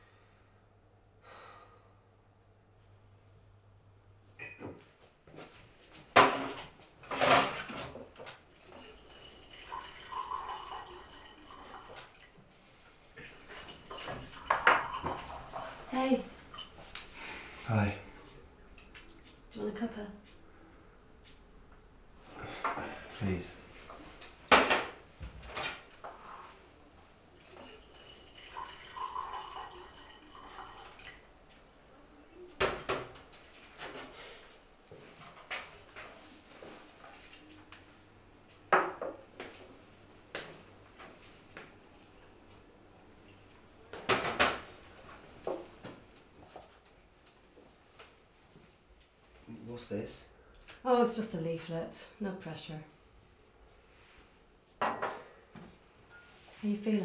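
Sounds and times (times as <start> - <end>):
mugs clinking on counter: 4.4 - 4.8, 54.8 - 55.3
water being poured: 8.5 - 12.4, 13.2 - 16.9, 27.4 - 31.3
tap water splashing into sink: 13.6 - 15.4.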